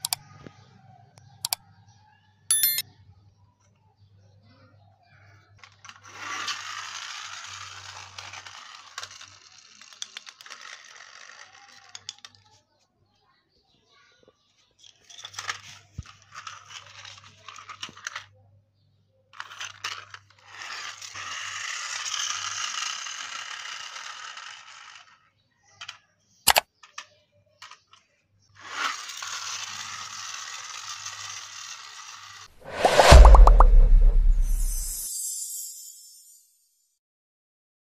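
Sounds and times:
toy car motor whirring: 5.6s - 12.6s, 15.0s - 18.3s, 19.4s - 32.5s
sharp knock: 32.6s - 35.1s
outro sound effect with boom: 32.6s - 36.4s.

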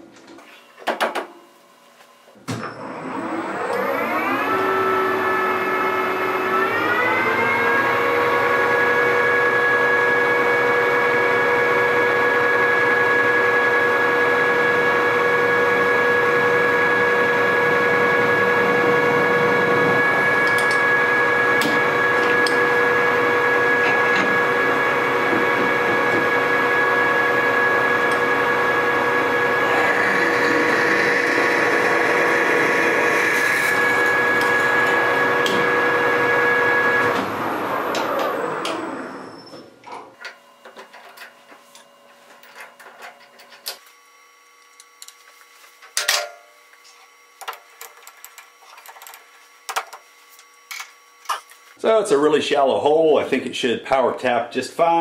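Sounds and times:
metal lathe whining: 2.7s - 39.7s
lathe tool cutting metal: 2.8s - 39.5s.

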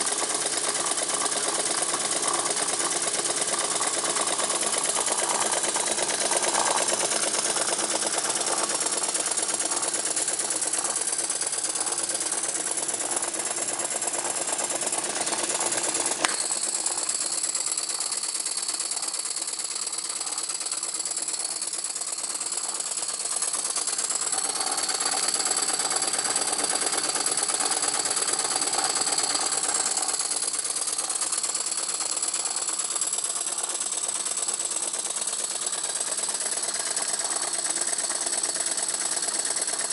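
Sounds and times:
steam engine chuffing: 0.0s - 39.9s
sharp click: 16.0s - 17.1s.

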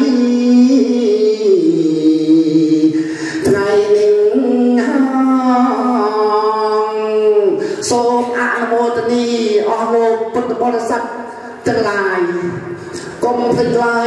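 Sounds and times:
person chanting in long notes: 0.0s - 7.6s.

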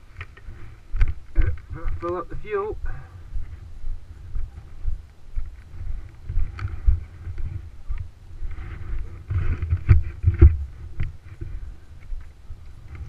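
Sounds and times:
gusty wind on microphone: 2.8s - 13.0s.

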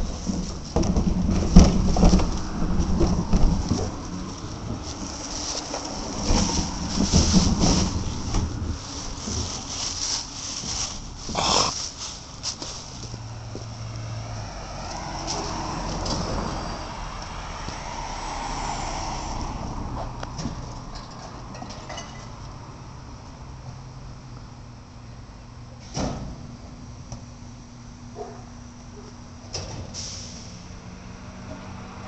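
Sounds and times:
knocks and bumps: 0.0s - 13.7s.

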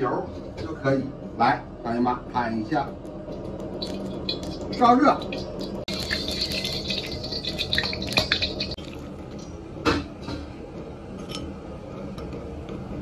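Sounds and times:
oil sizzling: 2.9s - 9.8s.

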